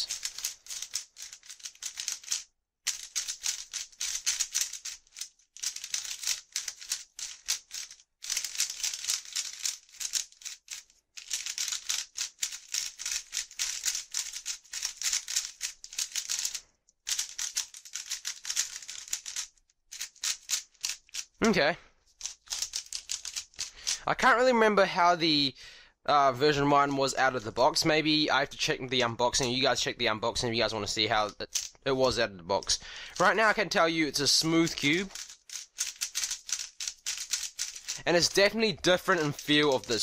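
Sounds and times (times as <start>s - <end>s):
speed cube clicking and clacking: 0.0s - 21.4s, 22.1s - 24.1s, 31.2s - 31.8s, 32.6s - 40.0s.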